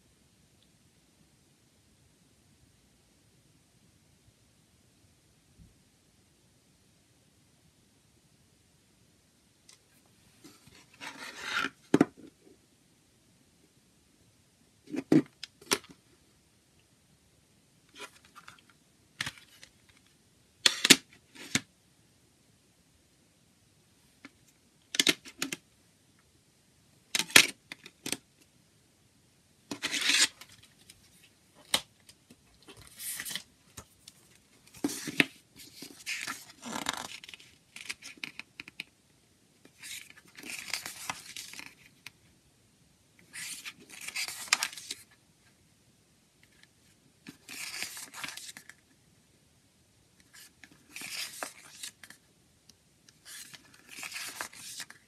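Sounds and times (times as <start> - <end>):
paper pages turning: 32.6 - 38.7, 39.7 - 41.9, 43.3 - 45.1, 47.3 - 48.8, 50.3 - 52.2, 53.2 - 55.0.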